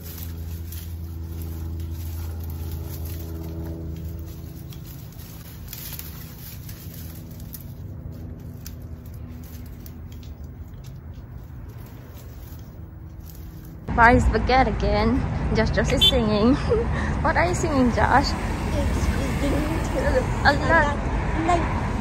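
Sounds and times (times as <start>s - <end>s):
hands rustling among plants: 0.0s - 14.1s
low engine hum: 0.0s - 22.0s.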